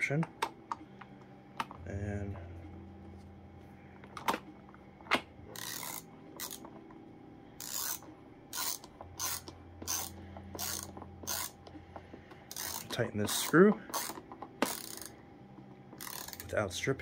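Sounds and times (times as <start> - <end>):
ratcheting screwdriver clicking: 8.6 - 11.6, 12.5 - 15.1.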